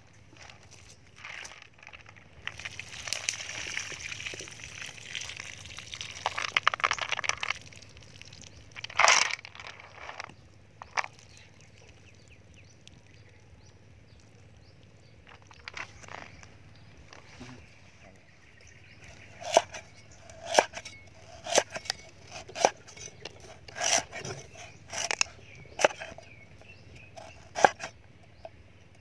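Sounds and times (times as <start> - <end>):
cleaver chopping on wooden board: 19.4 - 19.8, 20.4 - 22.8, 27.2 - 27.9.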